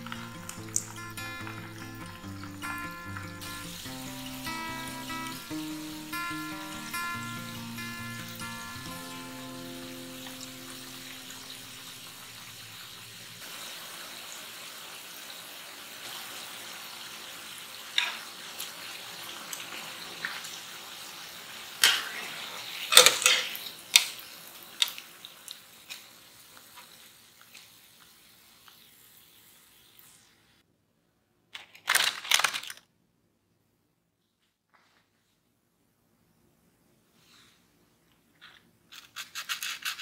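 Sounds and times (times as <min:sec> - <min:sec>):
food deep-frying in hot oil: 0:00.0 - 0:30.6.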